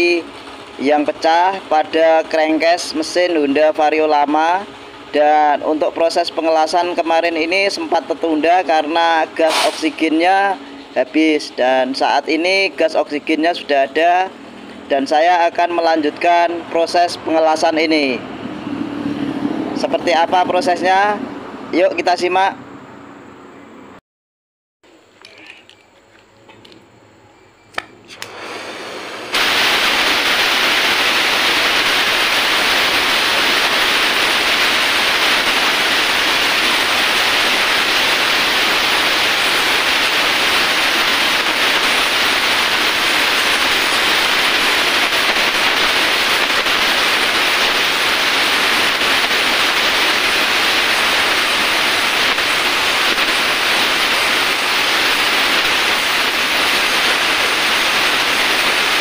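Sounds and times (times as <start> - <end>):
welding torch hissing: 0.0 - 10.9, 28.1 - 59.0.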